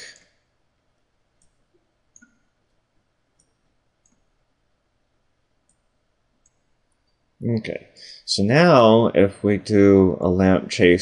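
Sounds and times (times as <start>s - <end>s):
computer mouse clicks: 1.4s - 2.6s, 3.4s - 4.3s, 5.7s - 7.2s.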